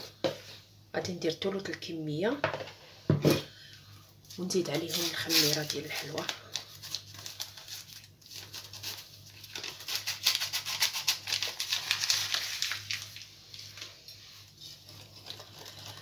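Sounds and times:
paper sachet crinkling: 4.4 - 16.0.

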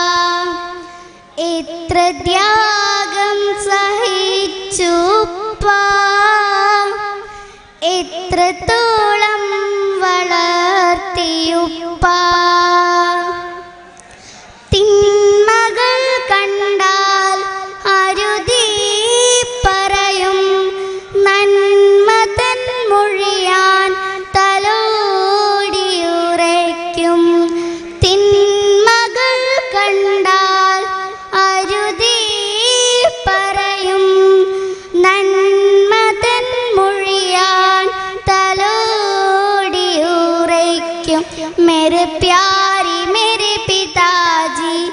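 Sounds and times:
child singing through microphone: 0.0 - 44.9.

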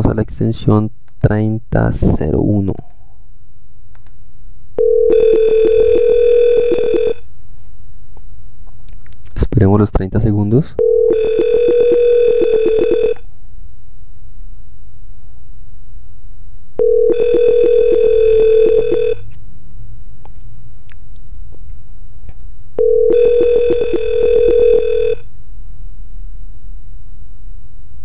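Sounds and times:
trilling electronic phone ring: 4.8 - 7.2, 10.8 - 13.2, 16.8 - 19.2, 22.8 - 25.2.

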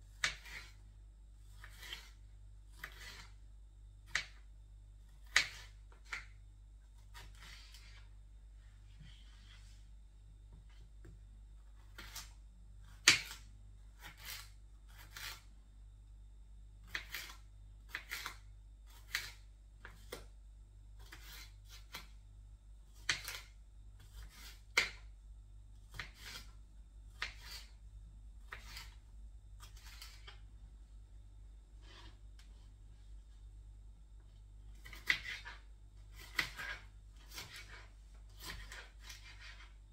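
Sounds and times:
knife slicing on cutting board: 0.2 - 0.8, 1.5 - 3.3, 11.8 - 12.3, 14.0 - 15.5, 21.0 - 22.1, 23.0 - 25.0, 25.9 - 26.5, 27.2 - 27.8, 28.5 - 29.0, 29.6 - 30.4, 34.8 - 39.8.

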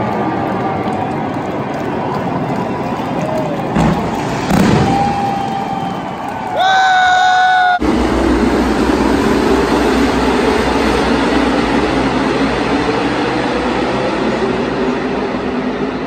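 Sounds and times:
race car engines roaring: 0.0 - 16.0
man shouting: 6.6 - 7.8.

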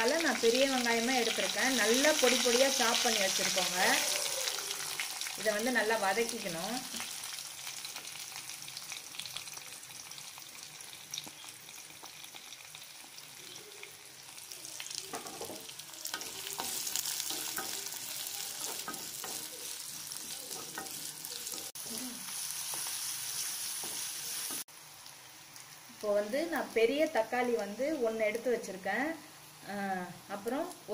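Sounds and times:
onions sizzling in oil: 0.0 - 30.9
spoon scraping and stirring: 20.4 - 21.7.

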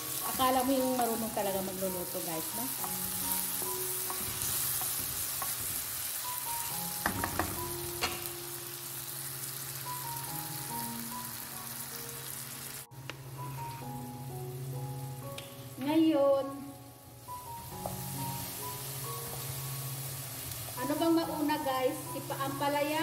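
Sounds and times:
vegetables sizzling in oil: 0.0 - 23.0
wooden spatula knocking on pan: 7.0 - 8.2.

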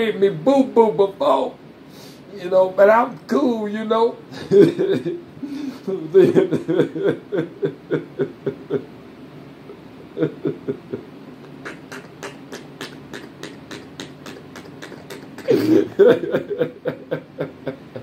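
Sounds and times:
man laughing: 4.3 - 8.9, 9.7 - 18.0.

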